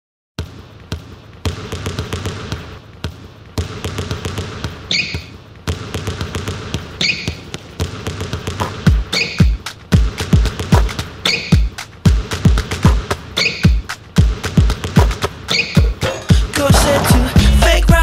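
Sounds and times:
basketball dribbling: 0.4 - 18.0
short squeak: 4.9 - 5.3, 7.0 - 7.4, 9.1 - 9.6, 11.2 - 11.6, 13.4 - 13.8, 15.5 - 16.0
pop song: 15.8 - 18.0.

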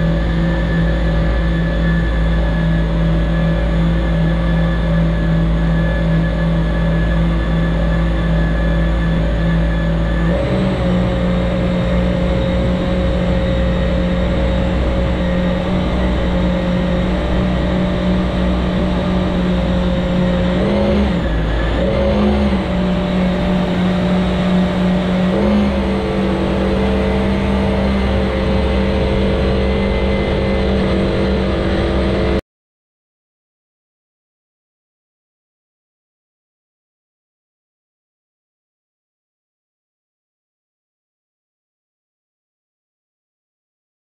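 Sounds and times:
jetski engine running: 0.0 - 32.4.

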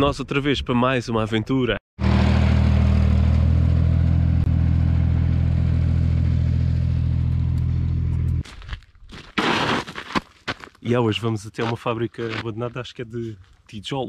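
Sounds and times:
tractor engine running: 2.0 - 8.4.

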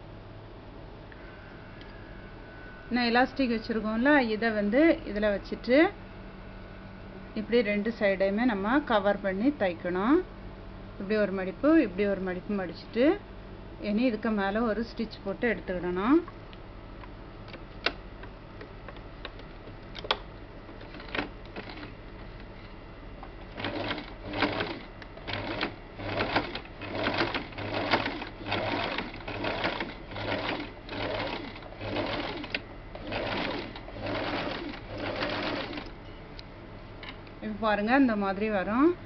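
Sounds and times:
sewing machine stitching: 20.8 - 21.9, 23.5 - 35.9.

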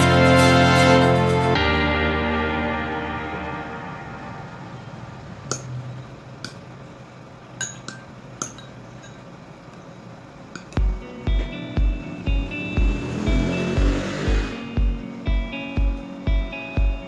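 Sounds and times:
spoon clinking against ceramic bowl: 7.6 - 9.3.

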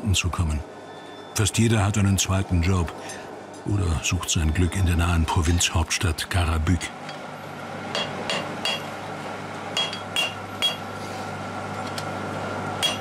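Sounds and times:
hammer striking metal: 8.0 - 8.9, 9.8 - 10.9, 12.8 - 13.0.

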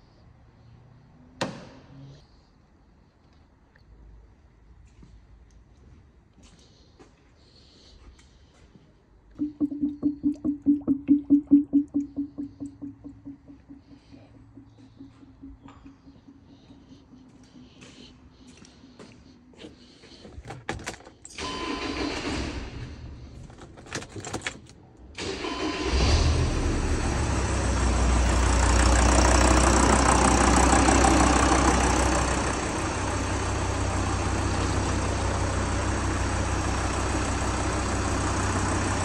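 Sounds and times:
diesel engine cranking and idling: 9.2 - 39.0
clicks: 9.4 - 17.6.

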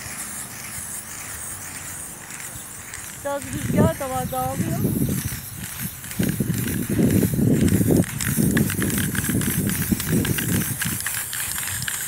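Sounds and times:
aerosol spray can hissing: 0.0 - 12.0
wind buffeting microphone: 2.4 - 12.0.

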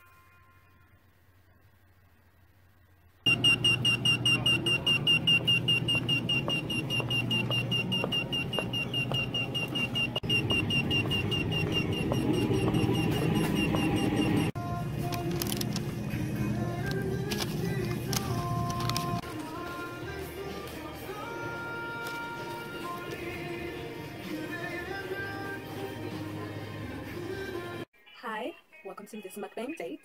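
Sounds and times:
pager beeping: 3.3 - 14.6.

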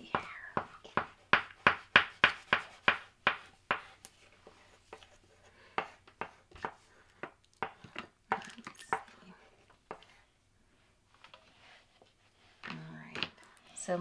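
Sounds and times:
crayon scribbling on paper: 0.2 - 6.8.

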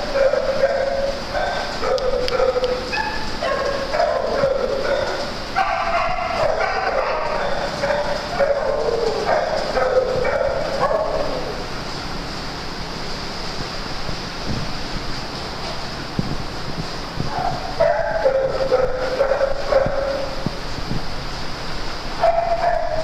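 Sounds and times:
dogs barking and yipping: 0.0 - 11.8, 17.2 - 20.6, 22.2 - 23.0.

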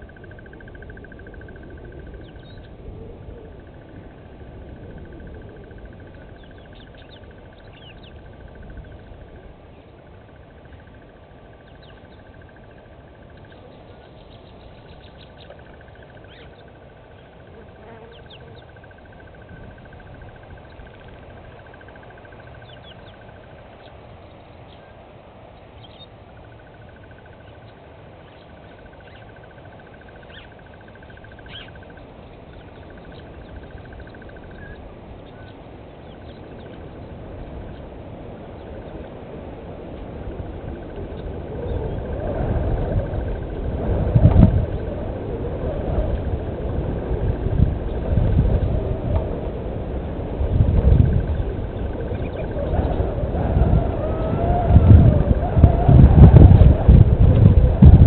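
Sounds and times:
small birds chirping: 0.0 - 2.8, 5.4 - 39.0
low steady rumble: 0.0 - 58.0.

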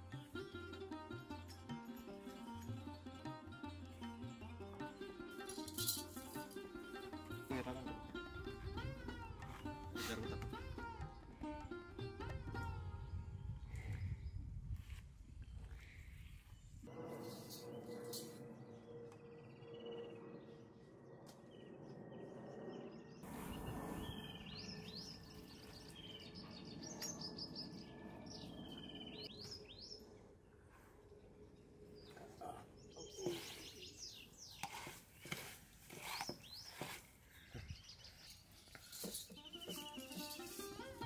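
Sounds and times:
small birds chirping: 17.8 - 41.0.

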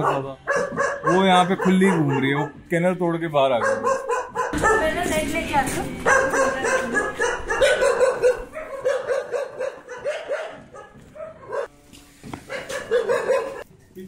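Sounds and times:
dogs barking: 0.0 - 2.7, 3.4 - 5.1, 6.0 - 11.7, 12.4 - 13.7.

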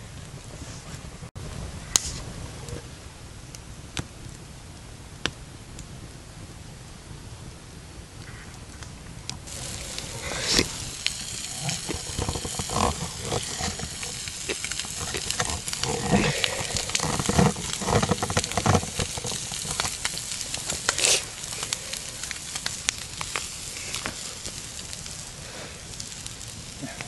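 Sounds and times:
campfire crackling and popping: 0.0 - 27.0
dull knocks and rustles: 11.0 - 21.0.

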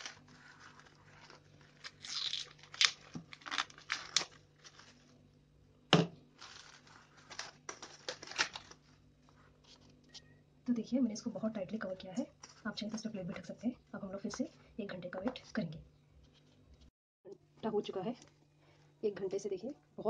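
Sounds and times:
plastic cling film crinkling: 0.0 - 5.3, 6.3 - 10.1.

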